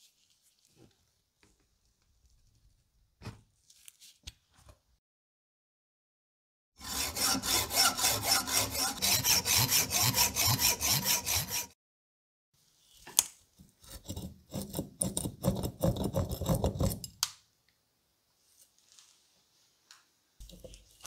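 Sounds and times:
hand saw scraping metal: 6.8s - 11.8s, 13.8s - 17.0s.

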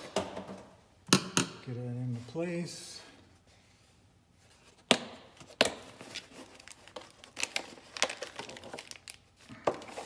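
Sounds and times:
plastic crinkling and rustling: 5.8s - 10.0s.

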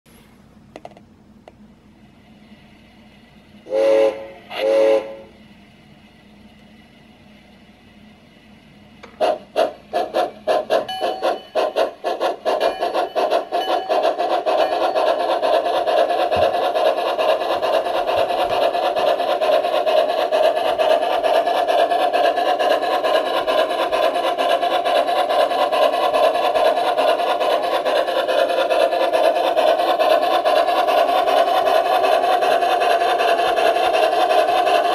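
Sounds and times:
steam locomotive chuffing: 2.0s - 34.9s
model train whistle blasts: 3.7s - 5.3s.

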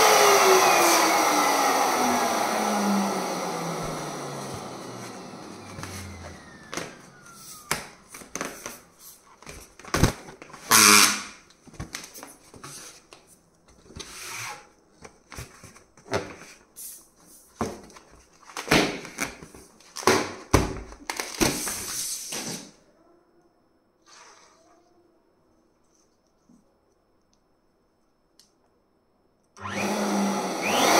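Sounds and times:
electric balloon pump: 0.0s - 8.8s, 10.7s - 11.3s, 29.6s - 30.9s.

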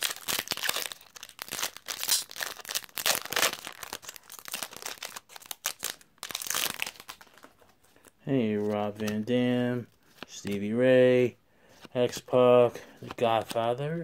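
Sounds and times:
foil wrapper crinkling and tearing: 0.0s - 7.6s.

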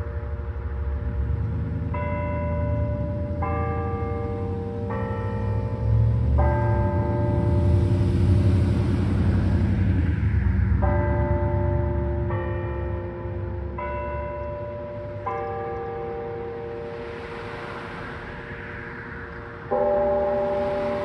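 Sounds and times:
church bells ringing: 0.0s - 21.0s.

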